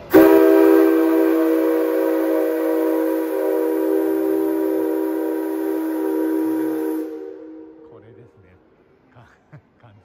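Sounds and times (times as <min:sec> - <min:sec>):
locomotive whistle long blast: 0:00.0 - 0:07.9.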